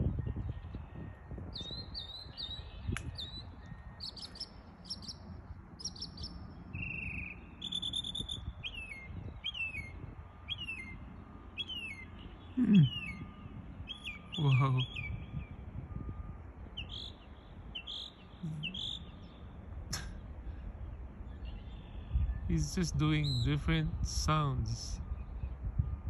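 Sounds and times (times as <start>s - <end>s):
mockingbird singing: 0.4s - 15.7s, 16.7s - 25.6s.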